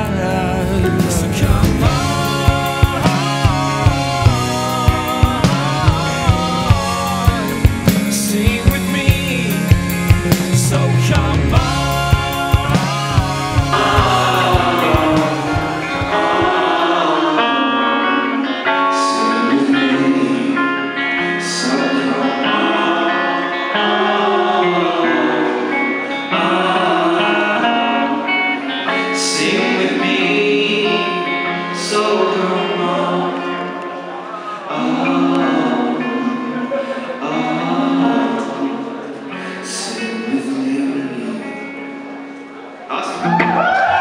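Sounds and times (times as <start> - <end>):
man singing: 0.0 - 42.1
acoustic and electric guitars: 0.0 - 44.0
low thumping beat: 0.9 - 10.5, 11.5 - 17.0.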